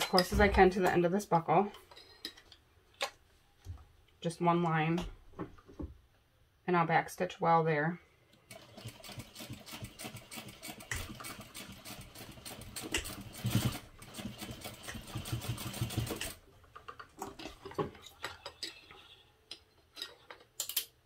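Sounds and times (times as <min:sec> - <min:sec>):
sewing machine stitching: 0:08.5 - 0:16.4.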